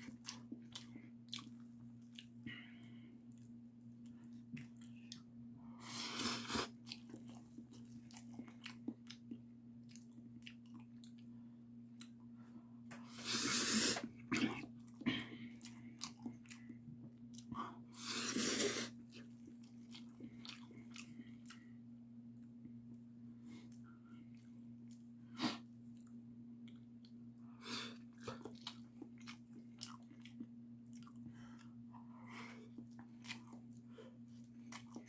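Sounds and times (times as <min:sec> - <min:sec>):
wet chewing: 0:00.0 - 0:02.4, 0:06.3 - 0:11.3, 0:14.0 - 0:21.8, 0:28.2 - 0:31.8, 0:32.7 - 0:35.0
steady low hum: 0:00.0 - 0:35.0
noodle slurping: 0:13.1 - 0:14.6, 0:18.0 - 0:19.0.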